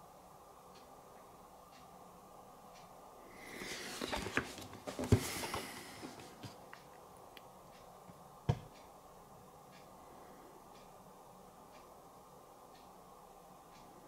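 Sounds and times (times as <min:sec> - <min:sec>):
packaging rustling: 0:03.6 - 0:06.6.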